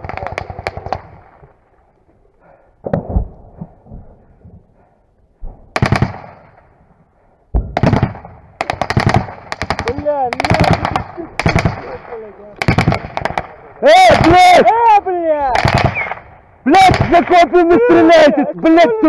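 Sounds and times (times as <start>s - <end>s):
automatic gunfire bursts: 5.8s - 6.5s, 7.8s - 14.4s, 15.5s - 17.3s
heavy thumps: 7.5s - 8.4s.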